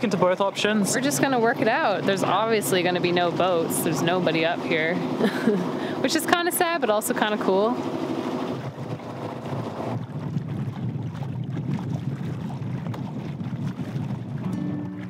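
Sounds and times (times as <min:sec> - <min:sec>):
boat engine rumble: 0:00.0 - 0:15.0
wind buffeting microphone: 0:08.6 - 0:15.0.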